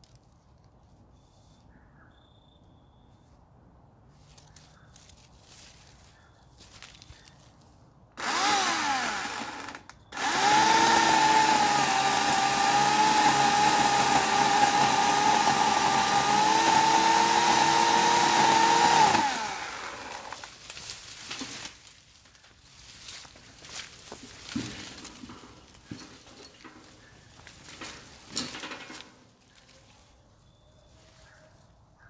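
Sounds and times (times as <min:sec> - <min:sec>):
electric chainsaw whining: 0:08.2 - 0:20.5.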